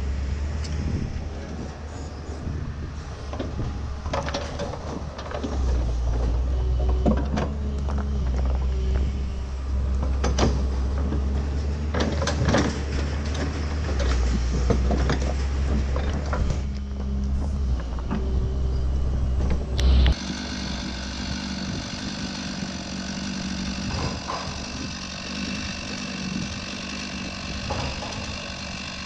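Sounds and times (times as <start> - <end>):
excavator diesel engine: 0.0 - 29.0
hydraulic hammer knocking: 22.6 - 29.0.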